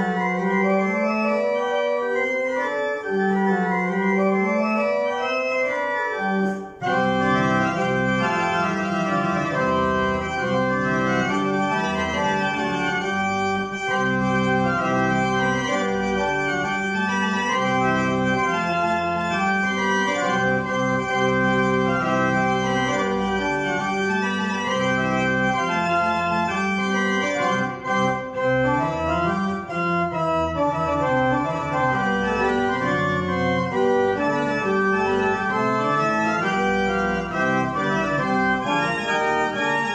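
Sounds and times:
pipe organ playing: 0.0s - 39.9s.

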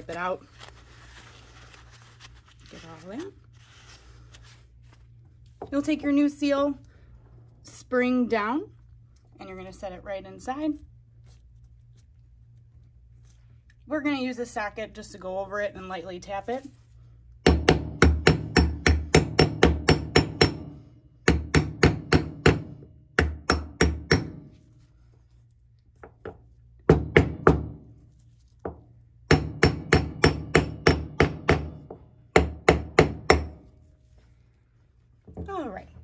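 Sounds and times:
hammer tapping metal: 17.4s - 24.4s, 29.3s - 33.6s.

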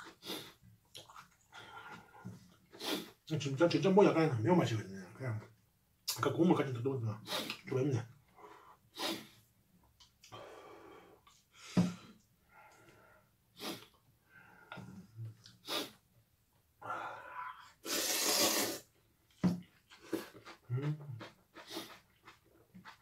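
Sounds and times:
person slurping noodles: 0.0s - 0.6s, 2.7s - 3.2s, 13.6s - 14.0s, 15.6s - 16.0s, 17.8s - 18.9s, 19.9s - 23.0s
chewing mouth noises: 0.0s - 1.5s, 19.6s - 23.0s.

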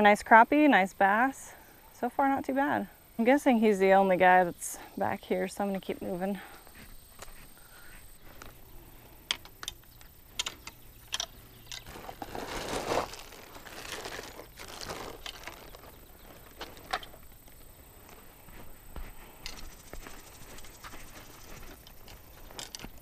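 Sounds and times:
sharp clicks and knocks: 9.3s - 11.9s
plastic bag crinkling: 11.7s - 17.1s.

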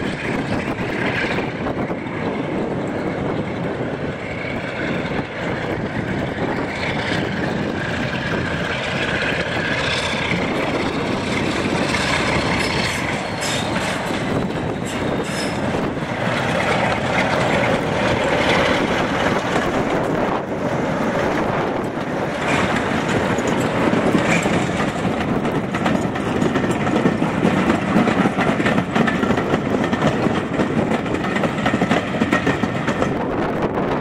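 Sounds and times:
diesel locomotive engine running: 0.0s - 34.0s
train wheels rolling on rails: 0.0s - 34.0s.

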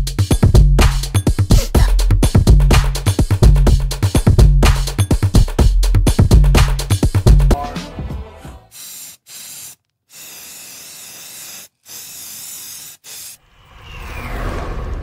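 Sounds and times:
electronic background music: 4.6s - 8.7s
tv static hiss bursts: 8.8s - 13.4s.

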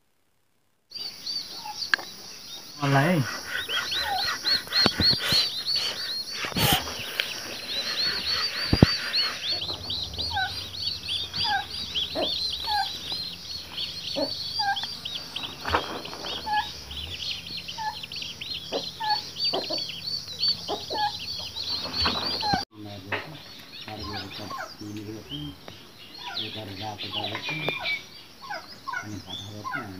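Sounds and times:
birds chirping rapidly: 0.9s - 29.9s
short bird call: 2.8s - 12.9s.

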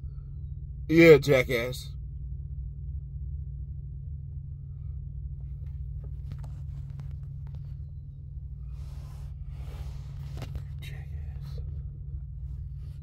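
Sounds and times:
vehicle cabin hum: 0.0s - 13.0s
faint clicks and rustles: 5.4s - 13.0s.

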